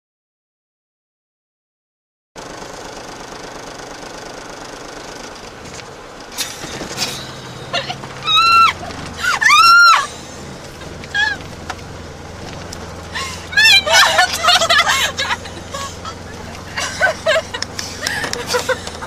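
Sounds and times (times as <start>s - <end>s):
car engine and road noise: 2.4s - 19.0s
women squealing with laughter: 7.7s - 10.2s, 11.1s - 11.5s, 13.1s - 19.0s.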